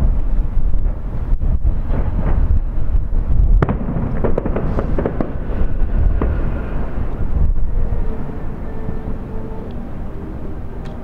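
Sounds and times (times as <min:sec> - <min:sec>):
fireworks bursting: 0:00.0 - 0:08.2
low rumble: 0:00.0 - 0:11.0.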